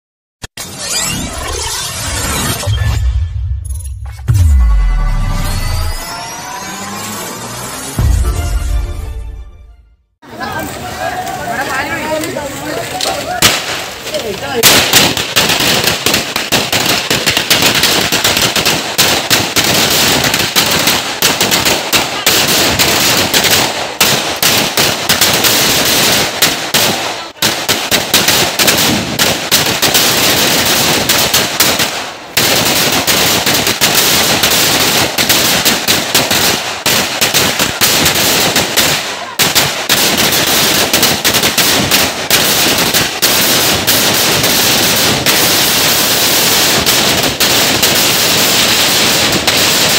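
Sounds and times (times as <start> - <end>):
firecrackers crackling: 10.2 - 49.9.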